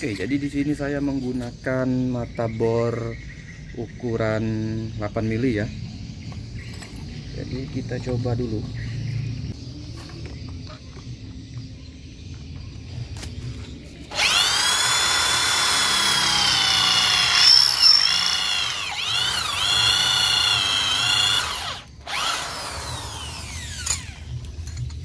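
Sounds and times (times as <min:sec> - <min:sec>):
drill motor whining: 0:14.1 - 0:24.3.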